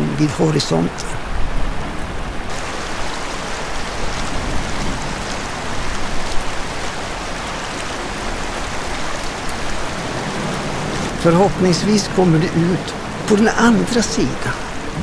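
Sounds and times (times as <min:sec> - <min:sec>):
river rushing: 0:00.0 - 0:15.0.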